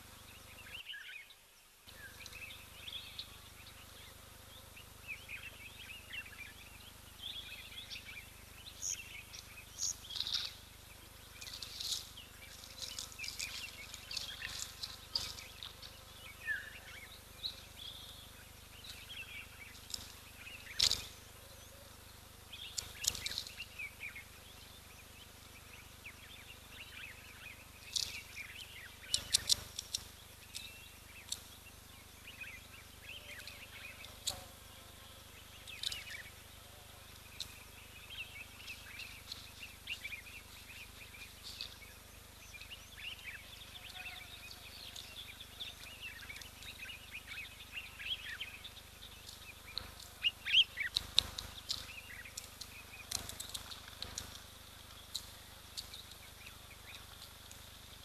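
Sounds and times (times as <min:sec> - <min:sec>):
birds chirping and twittering: 0:00.0 - 0:58.0
sharp clicks: 0:29.0 - 0:31.5.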